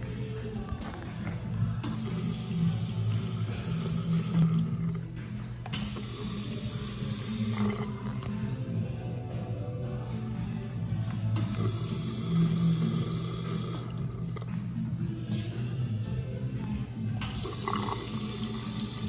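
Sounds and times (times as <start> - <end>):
faucet running into sink: 1.9 - 5.1, 5.8 - 8.4, 11.4 - 14.6, 17.2 - 19.0.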